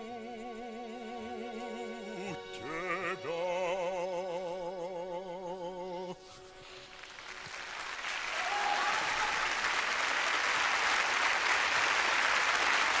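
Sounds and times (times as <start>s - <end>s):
audience applauding: 6.7s - 13.0s.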